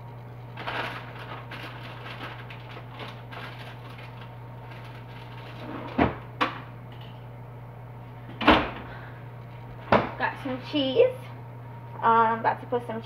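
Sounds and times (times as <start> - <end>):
refrigerator low hum: 0.0 - 13.0
knocks in refrigerator: 5.9 - 6.7, 8.4 - 8.9, 9.9 - 10.2.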